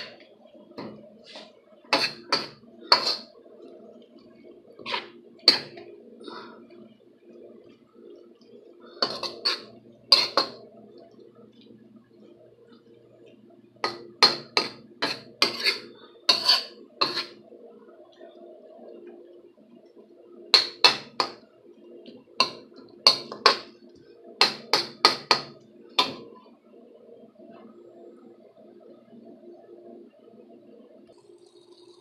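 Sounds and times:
spatula scraping a frying pan: 0:01.2 - 0:03.3, 0:04.8 - 0:05.9, 0:09.0 - 0:10.6, 0:13.8 - 0:17.4, 0:20.5 - 0:21.4, 0:22.4 - 0:23.7, 0:24.4 - 0:26.2.

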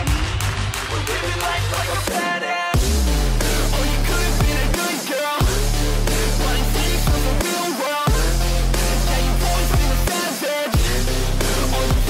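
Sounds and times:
electronic music with heavy bass: 0:00.0 - 0:12.0.

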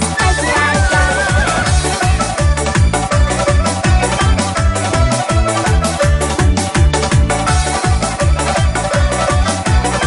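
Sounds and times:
electronic dance-pop music: 0:00.0 - 0:02.4.

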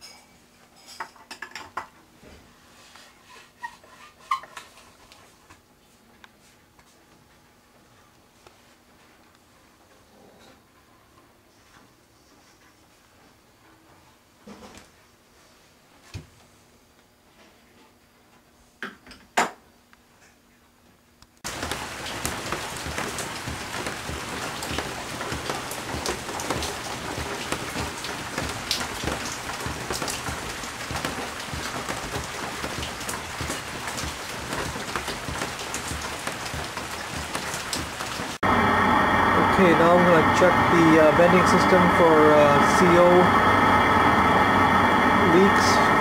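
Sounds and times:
steady crackling hiss: 0:21.3 - 0:46.0.

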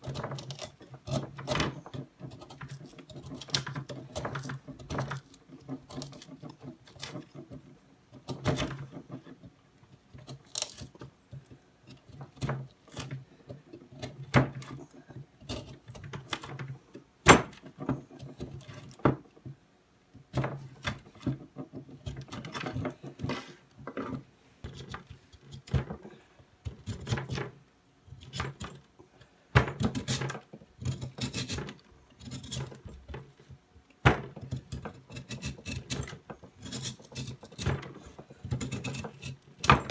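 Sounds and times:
knife scraping wood: 0:00.0 - 0:09.4, 0:10.0 - 0:16.5, 0:20.4 - 0:25.8, 0:29.8 - 0:33.0, 0:34.4 - 0:39.9.

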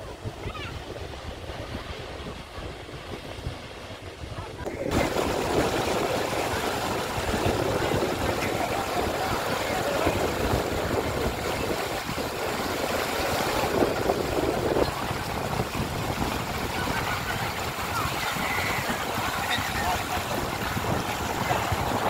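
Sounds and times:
river water rushing over rocks: 0:04.5 - 0:22.0.

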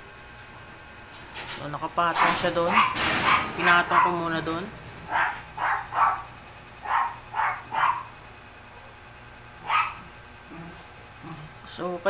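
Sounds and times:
dog barking: 0:02.2 - 0:04.3, 0:05.1 - 0:08.2, 0:09.6 - 0:10.1.

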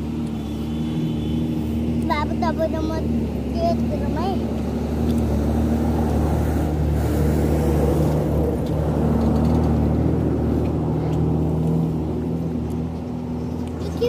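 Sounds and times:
truck engine humming: 0:00.0 - 0:14.0.

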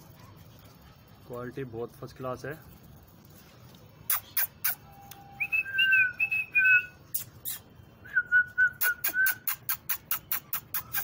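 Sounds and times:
mouth clicks: 0:04.1 - 0:05.2, 0:07.1 - 0:07.7, 0:08.6 - 0:11.0
person whistling: 0:05.0 - 0:06.9, 0:08.1 - 0:09.5.

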